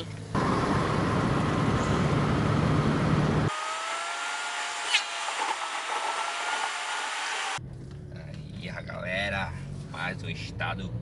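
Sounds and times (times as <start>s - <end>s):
wind and road noise: 0.0s - 11.0s
rising whine in car cabin: 0.3s - 4.3s.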